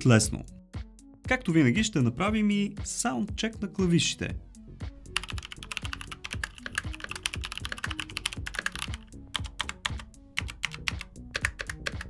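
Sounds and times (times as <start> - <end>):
mechanical keyboard typing: 5.2 - 12.0.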